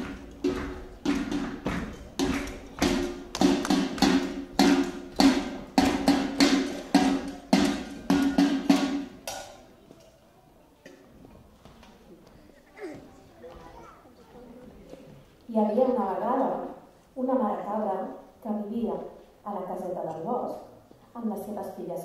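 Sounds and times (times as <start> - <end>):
wood block percussion beat: 0.0 - 9.5.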